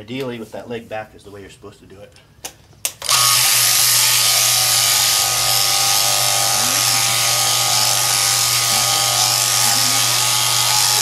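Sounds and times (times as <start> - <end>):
shearing machine humming: 3.0 - 11.0.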